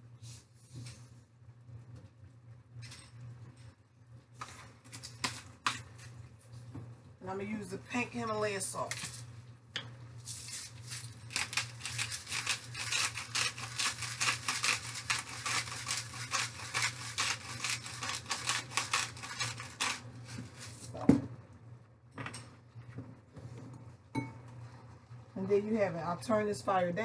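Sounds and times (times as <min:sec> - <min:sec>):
salt grinder crunching: 0:10.4 - 0:20.8.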